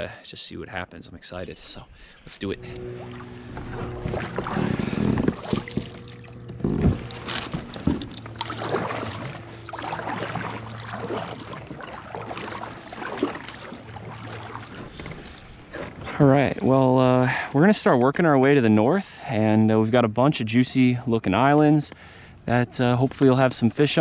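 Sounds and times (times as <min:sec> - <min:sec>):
steady low hum: 0:01.4 - 0:24.0
paddle splashing in water: 0:02.6 - 0:16.2.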